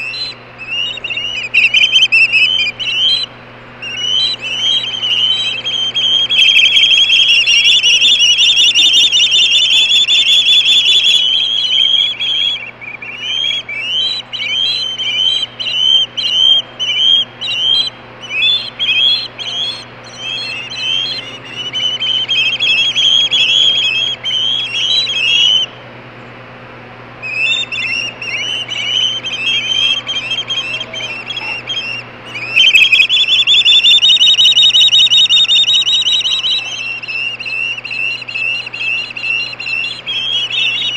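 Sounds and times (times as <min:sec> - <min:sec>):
young ospreys screaming: 0:00.0 - 0:25.8, 0:27.2 - 0:40.9.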